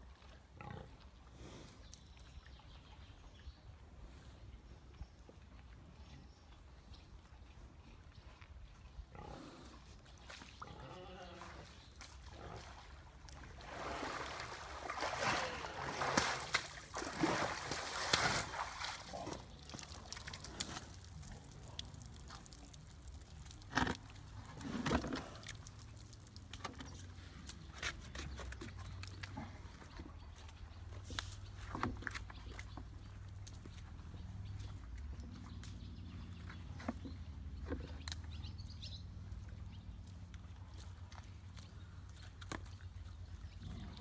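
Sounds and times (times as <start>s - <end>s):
mud sloshing and splashing: 11.4s - 27.5s.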